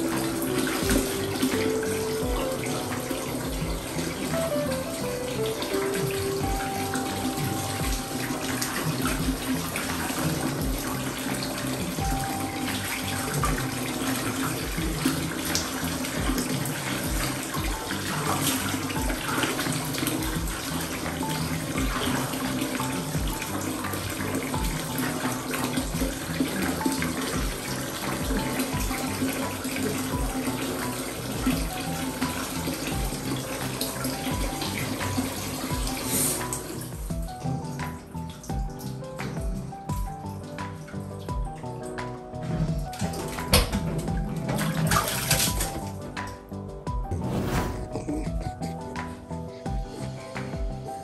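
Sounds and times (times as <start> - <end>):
water running into bath: 0.0 - 47.0
background music with low beat: 0.0 - 51.0.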